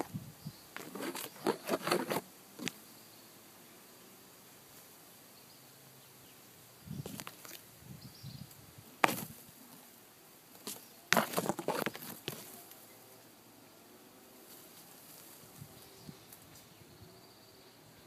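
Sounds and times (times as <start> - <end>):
leaves and twigs rustling and crackling: 0.0 - 2.8, 6.3 - 17.0.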